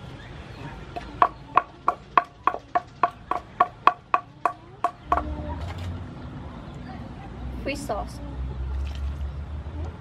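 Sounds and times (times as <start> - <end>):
pestle pounding in wooden mortar: 1.0 - 5.3.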